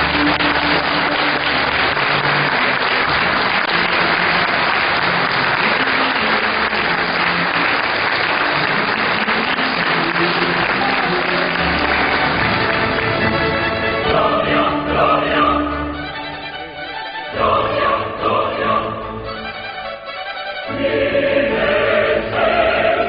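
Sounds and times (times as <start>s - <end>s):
crowd applauding: 0.0s - 14.0s.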